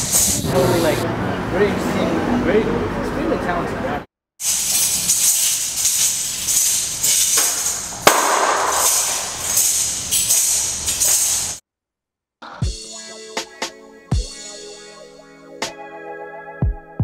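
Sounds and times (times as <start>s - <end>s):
shaken jingling percussion: 0.0s - 0.5s, 4.4s - 11.6s
sharp crack: 5.1s - 11.6s.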